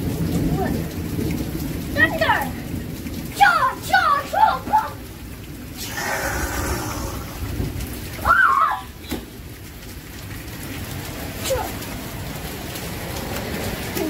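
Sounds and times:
heavy rain on pavement: 0.0s - 14.0s
low rumble: 5.7s - 8.2s.

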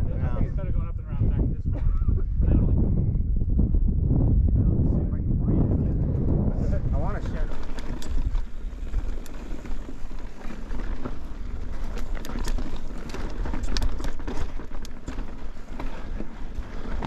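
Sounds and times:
riding and wind rumble: 0.0s - 17.0s
rocks and bike clicking and rattling: 5.6s - 17.0s
bike tyres crunching on stones: 6.9s - 17.0s.

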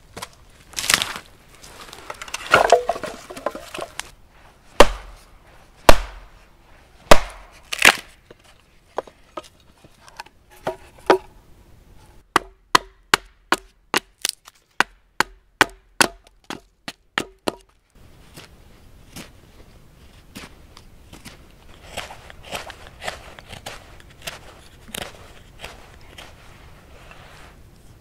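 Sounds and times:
axe chopping wood: 2.4s - 4.0s, 4.8s - 5.2s, 5.9s - 6.3s, 7.1s - 8.1s, 12.3s - 17.7s.

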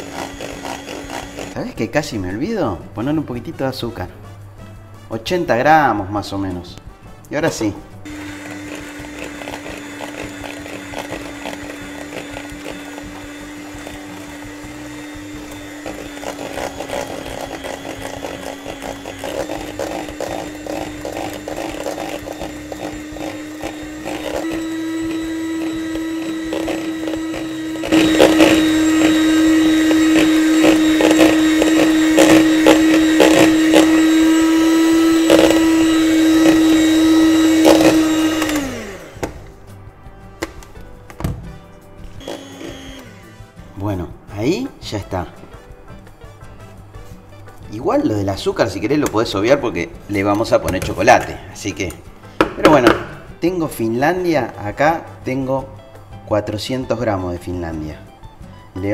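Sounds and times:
electric mixer motor running: 0.0s - 1.6s, 8.0s - 39.5s, 42.2s - 43.3s.

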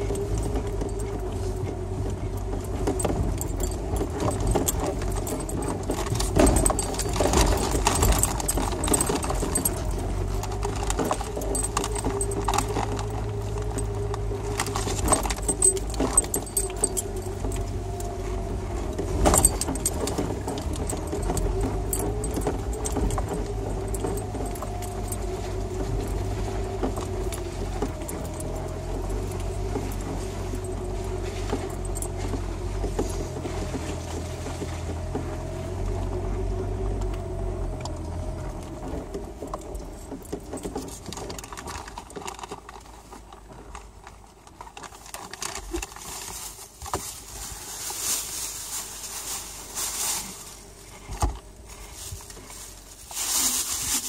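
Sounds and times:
vehicle engine droning: 0.0s - 54.0s.

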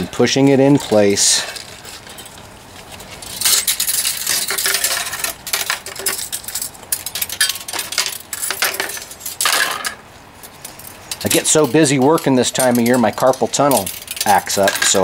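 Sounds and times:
spring winding metallic clicks: 10.6s - 15.0s.

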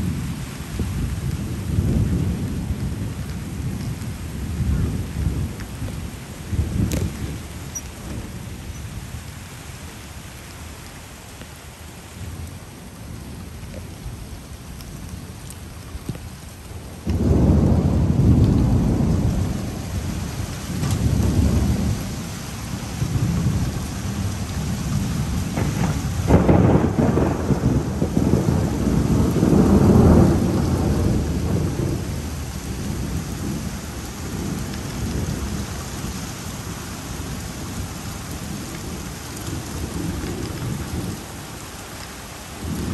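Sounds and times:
thunder rumbling: 0.0s - 9.2s, 16.8s - 41.4s, 42.6s - 42.9s
heavy rain falling: 0.0s - 42.9s.

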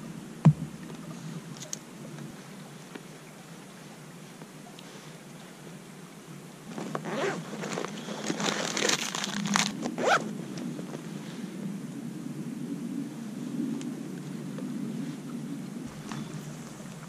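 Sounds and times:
scratchy rustling: 6.8s - 10.2s
zipper-like rasp: 7.0s - 7.5s, 8.3s - 10.2s.

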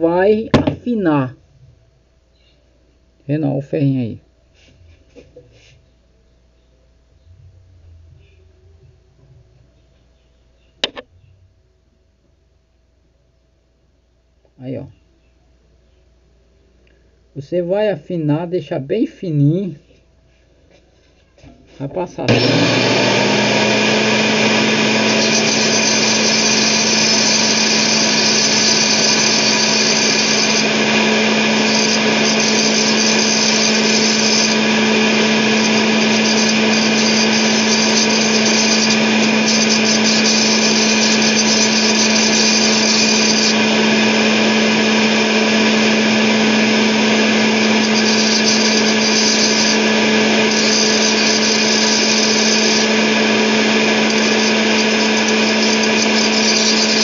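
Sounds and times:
circular saw motor whine: 22.2s - 57.0s
wire grinding on saw blade: 22.2s - 57.0s.

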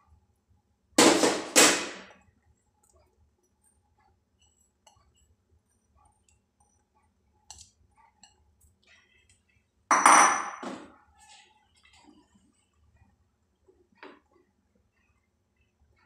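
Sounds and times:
kitchen utensils clattering: 9.9s - 10.9s.

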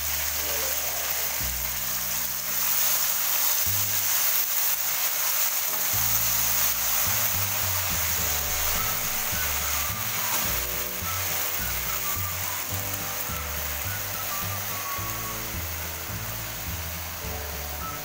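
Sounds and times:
vegetables sizzling in hot oil: 0.0s - 18.0s
background music: 5.7s - 18.0s.

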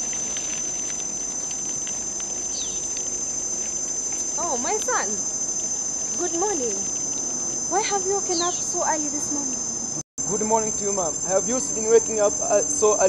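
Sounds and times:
insects chirring: 0.0s - 13.0s
indistinct voices: 7.7s - 13.0s.

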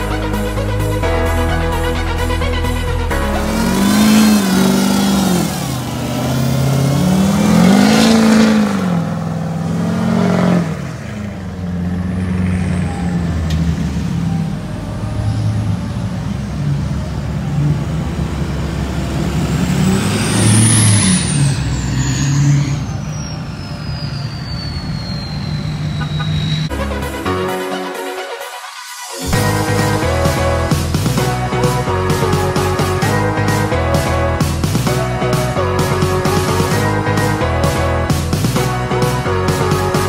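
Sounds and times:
truck engines running: 0.0s - 27.2s
pickup engine revving: 0.8s - 14.2s, 15.3s - 23.3s
high falling whistle: 19.9s - 26.9s.

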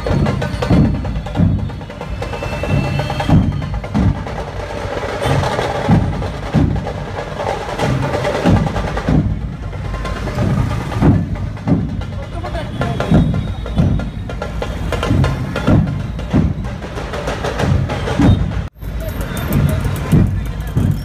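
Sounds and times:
dhol drums beating: 0.0s - 21.0s
sharp quick percussion: 17.3s - 21.0s.

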